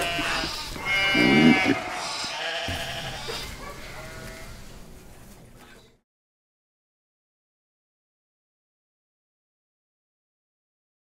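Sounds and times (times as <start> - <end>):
sheep bleating: 0.0 - 4.6.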